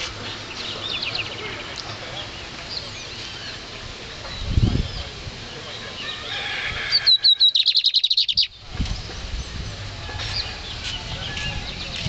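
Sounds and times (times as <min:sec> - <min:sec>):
finch singing high trill: 0:06.9 - 0:08.6
bird chirps: 0:06.9 - 0:12.0.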